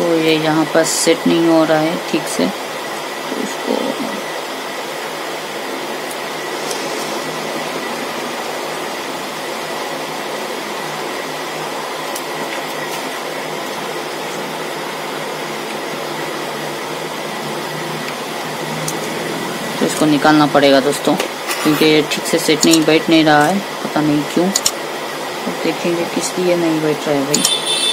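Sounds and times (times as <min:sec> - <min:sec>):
thin high whine: 0:01.3 - 0:12.0
fan-like whooshing: 0:02.7 - 0:20.4
low hum: 0:03.3 - 0:20.2.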